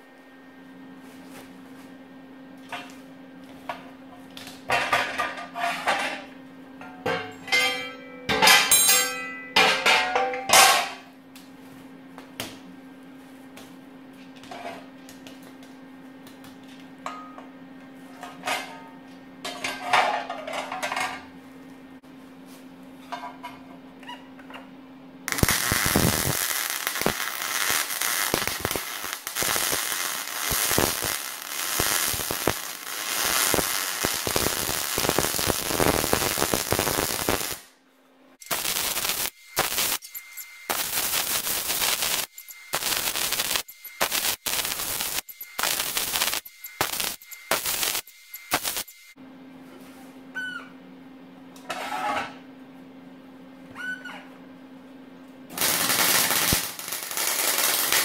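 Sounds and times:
welding arc crackling: 25.3s - 37.7s, 38.4s - 49.2s, 55.6s - 58.0s.

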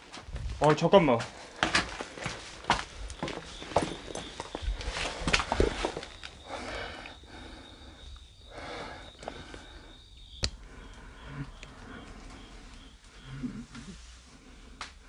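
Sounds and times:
footsteps on debris: 0.0s - 6.4s.

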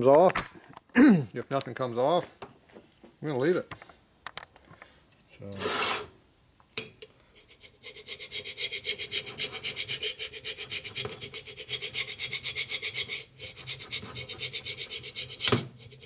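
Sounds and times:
hand scraper scraping metal: 5.5s - 6.2s, 7.6s - 16.0s.

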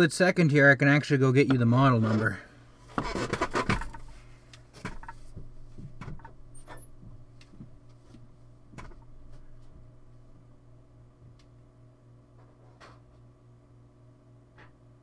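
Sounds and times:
steady low hum: 0.0s - 15.0s
knocks and clicks of handling things: 2.9s - 9.5s.

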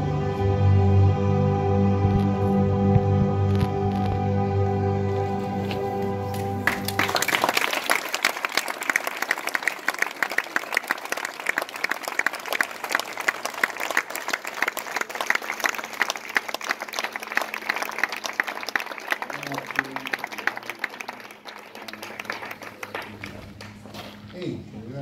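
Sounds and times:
music: 0.0s - 7.5s
audience applauding: 5.5s - 24.2s.

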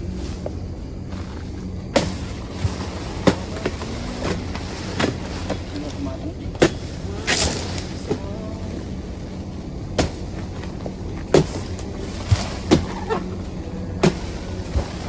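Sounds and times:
sickle hacking into palm fronds: 1.9s - 8.4s, 9.9s - 15.0s.

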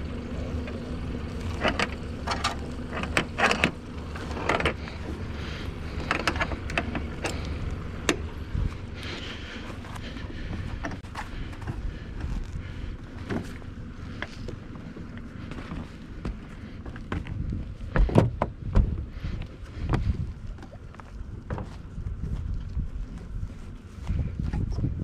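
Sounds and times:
low rumble: 0.0s - 25.0s
knocks and clicks on boat: 17.9s - 19.0s.

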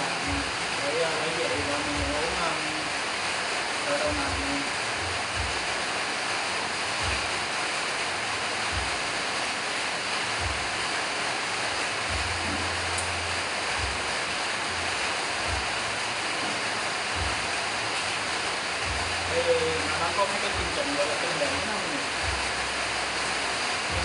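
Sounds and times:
steady rushing hiss: 0.0s - 24.0s
soft low thumps: 0.2s - 0.6s, 1.9s - 2.4s, 4.1s - 5.8s, 7.0s - 7.5s, 8.7s - 9.1s, 10.4s - 10.8s, 12.1s - 12.7s, 13.7s - 14.2s, 15.4s - 15.9s, 16.5s - 17.7s, 18.8s - 19.3s, 22.2s - 22.7s.

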